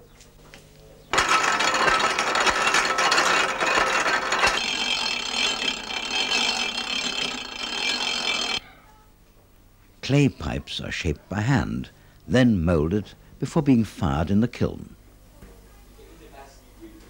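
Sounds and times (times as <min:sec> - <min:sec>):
rope-making machine rattling: 0:01.1 - 0:08.6.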